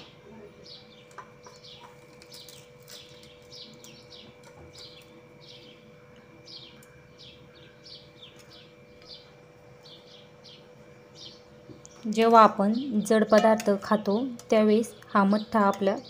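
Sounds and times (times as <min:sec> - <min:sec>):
faint steady hum: 0:00.0 - 0:16.0
small bird chirping: 0:00.6 - 0:05.8.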